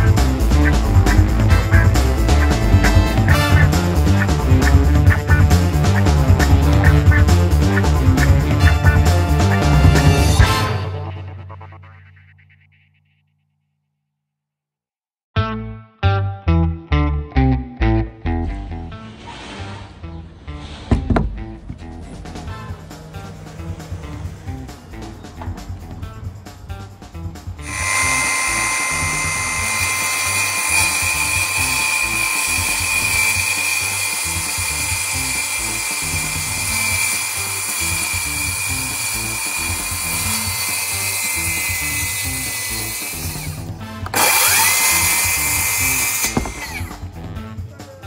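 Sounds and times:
power tool motor whining: 0:27.6 - 0:47.2.

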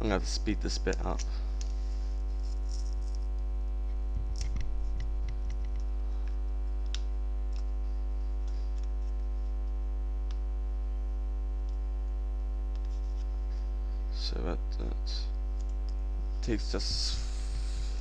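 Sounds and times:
electrical mains hum: 0:00.0 - 0:18.0.

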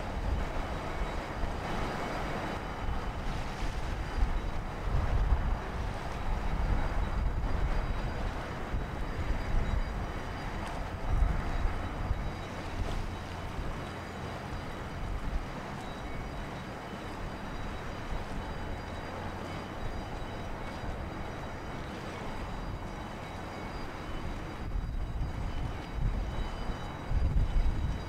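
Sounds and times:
ship engine low rumble: 0:00.0 - 0:28.0
wind buffeting microphone: 0:00.0 - 0:28.0.

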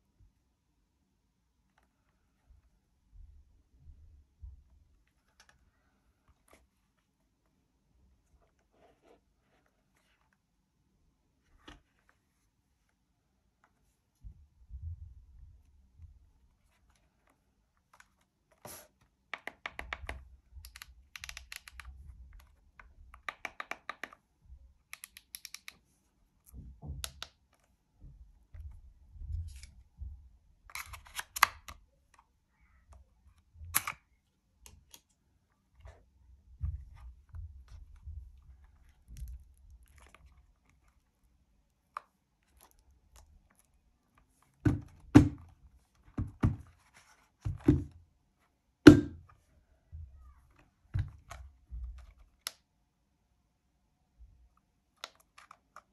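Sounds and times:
plastic device handling clicks: 0:24.9 - 0:25.8, 0:33.7 - 0:34.0.

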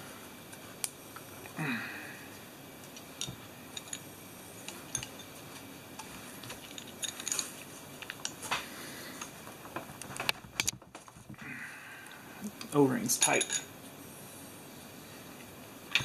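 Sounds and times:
small metal parts clicking: 0:02.8 - 0:05.4, 0:06.0 - 0:08.4.

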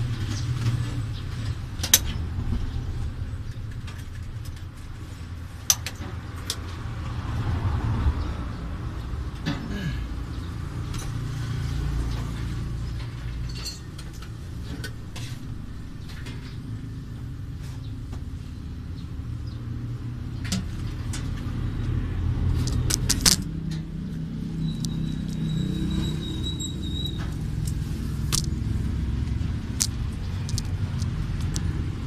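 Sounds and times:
wiring and connectors clicking: 0:22.5 - 0:25.5, 0:27.1 - 0:28.6, 0:29.2 - 0:32.0.

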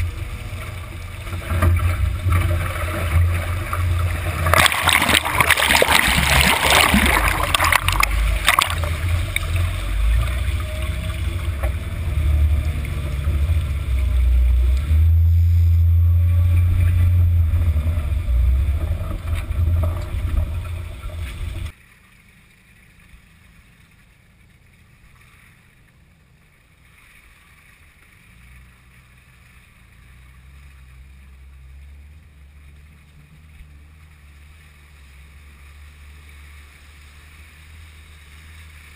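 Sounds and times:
deep engine rumble: 0:00.0 - 0:38.9
water splashing and rushing: 0:00.0 - 0:38.9.

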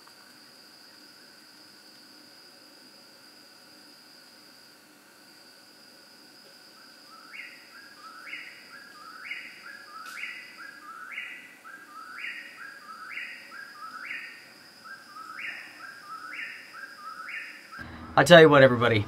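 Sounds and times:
steady high-pitched hum: 0:00.0 - 0:19.0.

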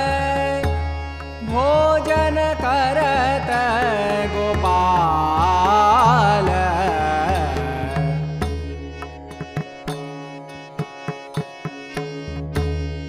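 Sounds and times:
devotional singing: 0:01.4 - 0:08.4.

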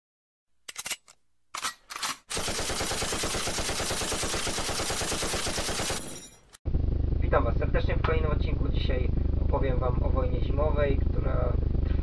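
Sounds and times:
gunshots: 0:02.0 - 0:06.5
automatic machine-gun fire: 0:02.3 - 0:06.2.

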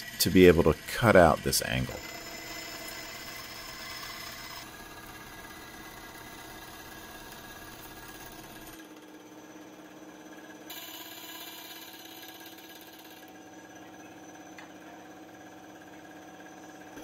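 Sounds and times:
band saw cutting metal: 0:00.0 - 0:08.9.

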